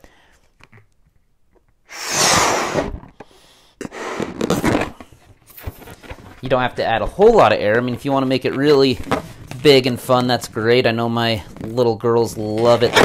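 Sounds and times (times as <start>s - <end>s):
man blowing up a balloon: 1.9s - 3.2s, 3.8s - 5.0s.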